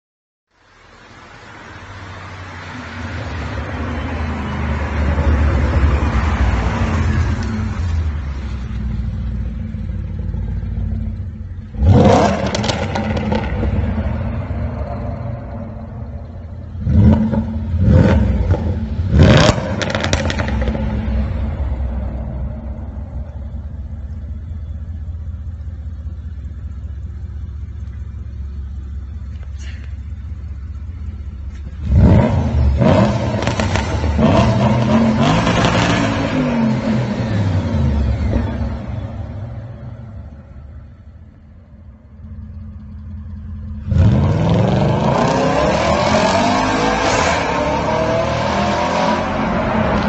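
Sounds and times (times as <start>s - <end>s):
car engine revving and accelerating: 4.4s - 23.9s, 31.6s - 39.8s, 43.6s - 50.0s
car engine idle rumble: 7.3s - 11.9s, 20.9s - 32.8s, 37.3s - 44.0s.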